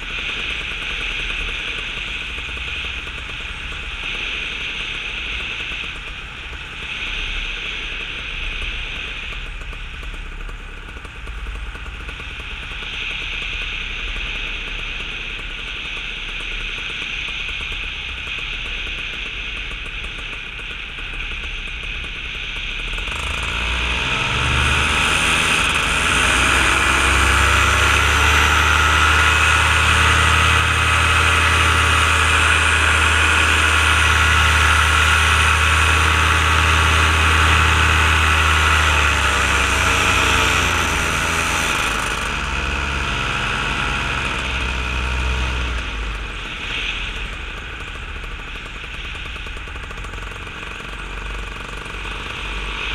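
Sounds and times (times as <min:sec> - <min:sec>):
paramotor engine running: 0:00.0 - 0:52.9.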